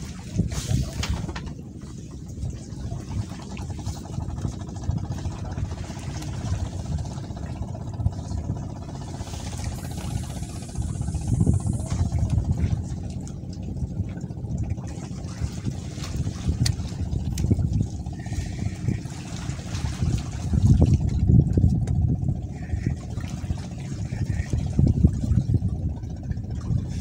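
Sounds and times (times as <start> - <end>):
sea water lapping: 0.0 - 27.0
wind rumbling on microphone: 0.0 - 27.0
faint steady hum: 8.4 - 27.0.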